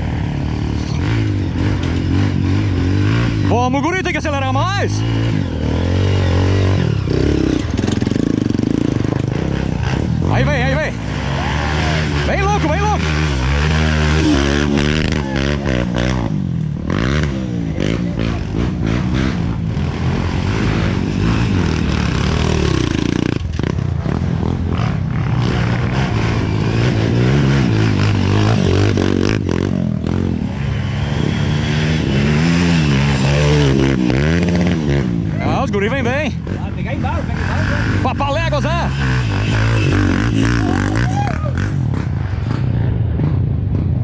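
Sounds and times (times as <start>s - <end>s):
dirt bike engines revving: 0.0s - 44.0s.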